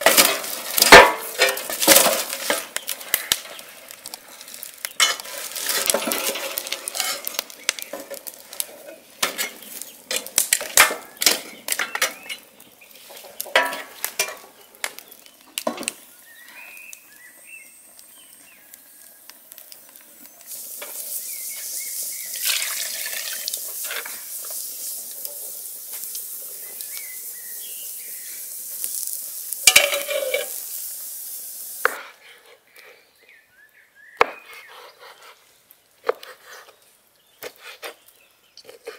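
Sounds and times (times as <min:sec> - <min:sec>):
meat sizzling in a pot: 0:00.0 - 0:32.1
wood fire crackling and popping: 0:00.0 - 0:32.9
metal pot lid clatter: 0:29.7 - 0:30.5.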